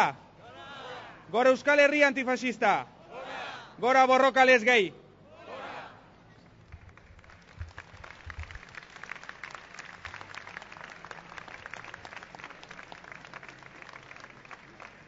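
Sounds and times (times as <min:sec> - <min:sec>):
crowd applauding: 0:06.7 - 0:15.0.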